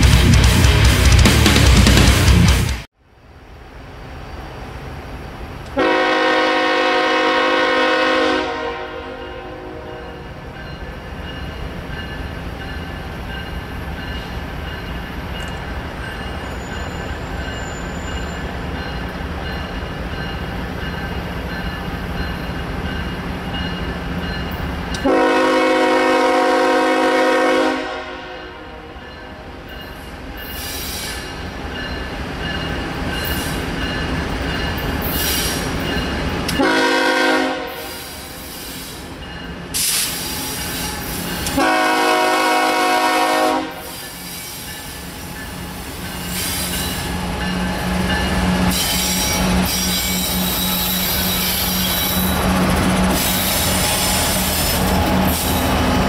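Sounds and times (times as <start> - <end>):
train rumble: 0.0 - 56.0
locomotive horn blasts: 5.8 - 10.2, 25.0 - 29.0, 36.5 - 38.1, 41.4 - 43.9.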